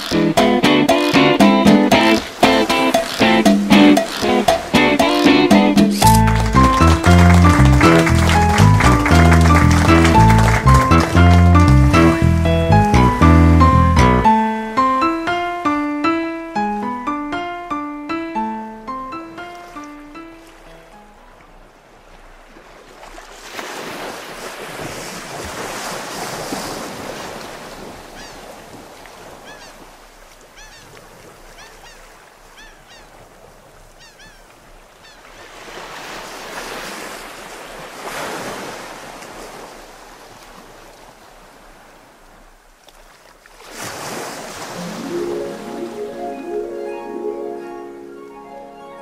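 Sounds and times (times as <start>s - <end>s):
surf breaking on a beach: 0.0s - 13.2s, 22.5s - 30.5s, 43.6s - 48.2s
music: 0.0s - 21.2s, 44.8s - 49.0s.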